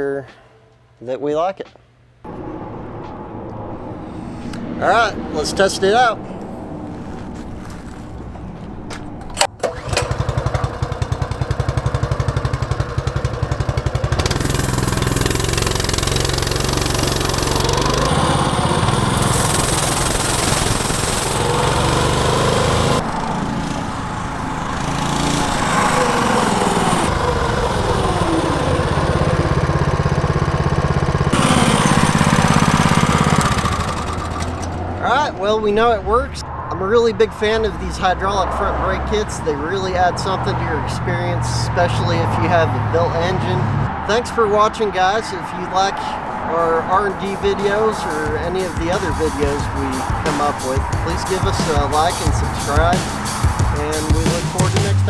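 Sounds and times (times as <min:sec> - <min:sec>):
small engine starting and revving: 0:09.4 - 0:35.0.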